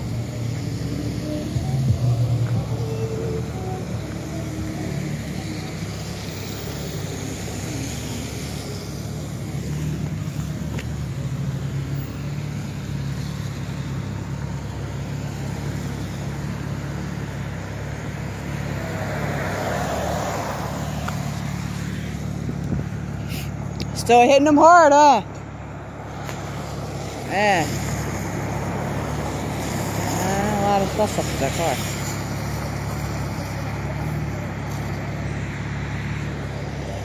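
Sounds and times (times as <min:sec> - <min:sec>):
car engine hum: 0:00.0 - 0:37.0
tyre road noise: 0:00.0 - 0:37.0.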